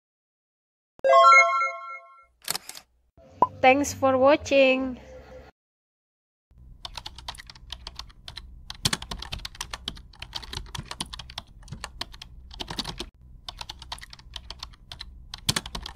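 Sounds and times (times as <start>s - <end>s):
computer keyboard typing: 6.8s - 15.9s.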